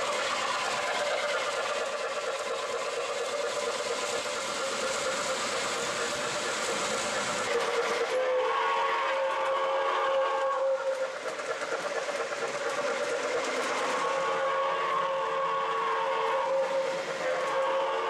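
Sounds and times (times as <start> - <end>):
model train running noise: 0.0 - 18.0
steam whistle blasts: 7.4 - 11.0, 13.9 - 18.0.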